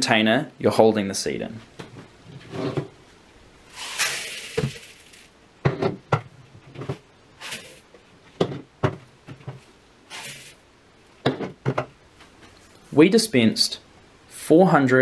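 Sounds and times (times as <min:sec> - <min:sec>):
seeds pouring into plastic bowl: 0:03.7 - 0:05.3, 0:07.4 - 0:07.8, 0:10.1 - 0:10.6.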